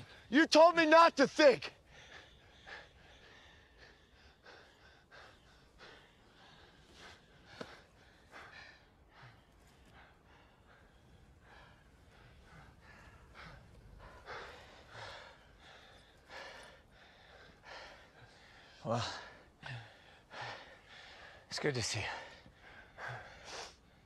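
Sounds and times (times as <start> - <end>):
men breathing hard: 0.0 - 0.4, 1.4 - 24.0.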